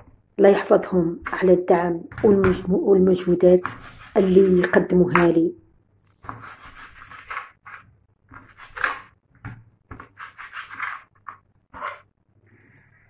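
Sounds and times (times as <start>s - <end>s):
knife slicing on wooden board: 6.2s - 9.1s.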